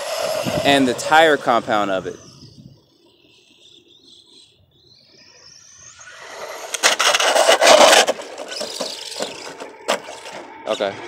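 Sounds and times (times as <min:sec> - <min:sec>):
tyres rushing on rough asphalt: 0:00.0 - 0:02.0, 0:06.2 - 0:11.0
electric motor whining: 0:00.0 - 0:03.0, 0:05.4 - 0:11.0
toy truck knocking and scraping: 0:06.2 - 0:10.7.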